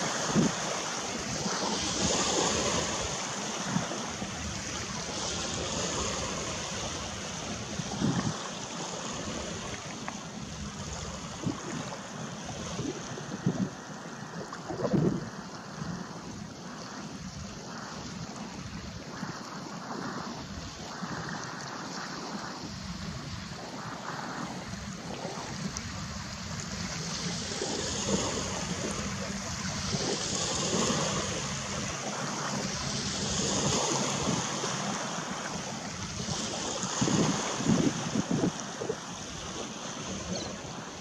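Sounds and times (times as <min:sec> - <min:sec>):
water noise: 0:00.0 - 0:41.0
wind: 0:00.0 - 0:41.0.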